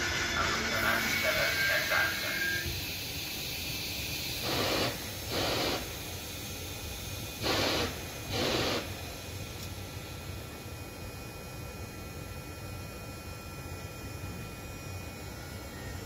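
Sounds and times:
compressed air hissing from train: 0:00.0 - 0:10.1.

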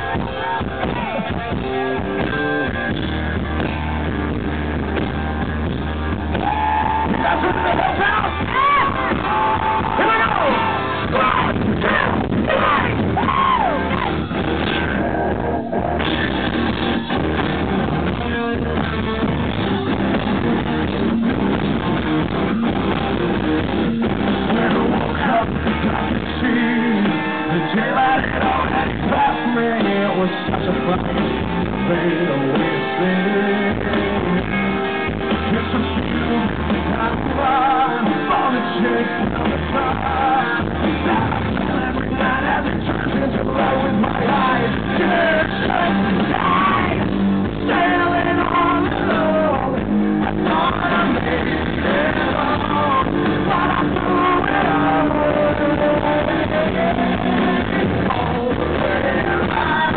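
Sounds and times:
electric guitar: 0:00.0 - 0:59.9
rock band playing: 0:00.0 - 0:59.9
man singing into microphone: 0:06.4 - 0:14.0, 0:24.4 - 0:34.8, 0:35.4 - 0:59.9.

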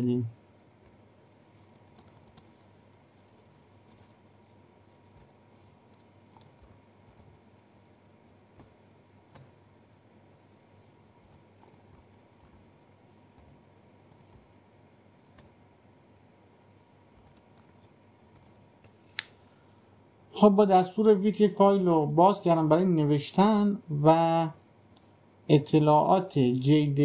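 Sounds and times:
computer keyboard keystrokes: 0:01.6 - 0:02.6, 0:05.9 - 0:07.4, 0:08.5 - 0:09.6, 0:11.6 - 0:12.6, 0:13.3 - 0:14.5, 0:15.3 - 0:15.5, 0:17.1 - 0:19.3.

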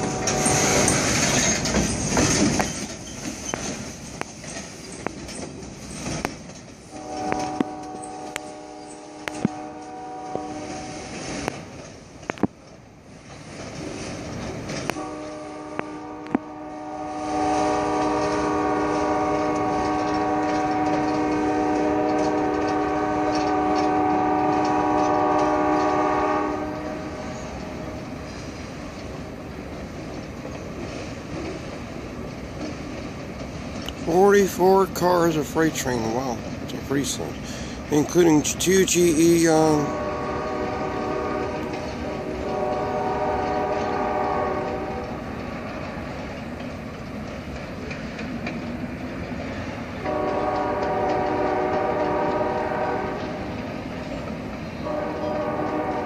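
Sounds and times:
locomotive horn blasts: 0:00.0 - 0:01.1, 0:06.9 - 0:11.2, 0:14.9 - 0:28.1, 0:37.0 - 0:45.1, 0:50.0 - 0:53.5, 0:54.8 - 0:56.0
train wheels clicking on rail joints: 0:00.0 - 0:56.0.

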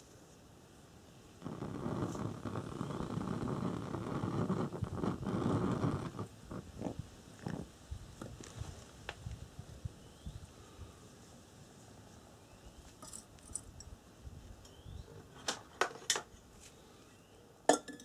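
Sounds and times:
lantern burner flame rushing: 0:01.3 - 0:09.0.

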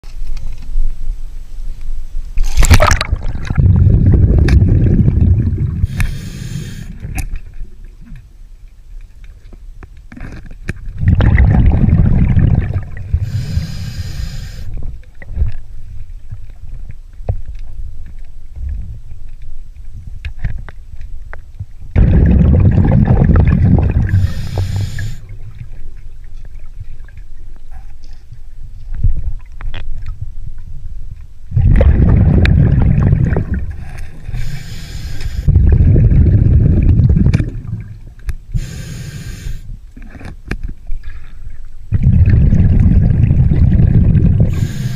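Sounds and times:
bubbling of exhaled air: 0:02.4 - 0:08.2, 0:10.2 - 0:15.6, 0:21.9 - 0:26.0, 0:31.5 - 0:40.3, 0:41.0 - 0:44.9.

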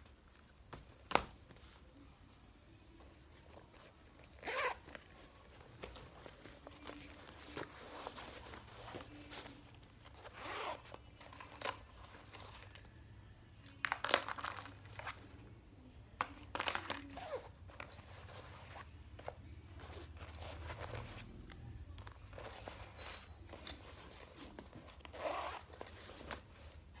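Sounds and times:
nylon bag rustling: 0:03.5 - 0:12.9, 0:22.0 - 0:27.0
zipper noise: 0:03.8 - 0:12.4, 0:17.0 - 0:21.5, 0:22.3 - 0:26.8.

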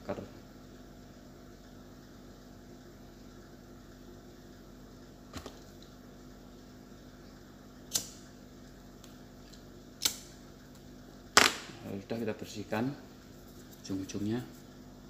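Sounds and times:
faint steady hum: 0:00.0 - 0:15.0
lighter clicking: 0:07.9 - 0:08.2, 0:10.0 - 0:10.3.

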